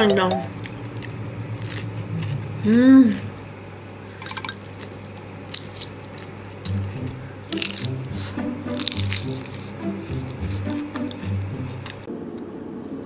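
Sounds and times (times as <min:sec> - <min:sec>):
wet chewing and smacking: 0:04.4 - 0:12.1.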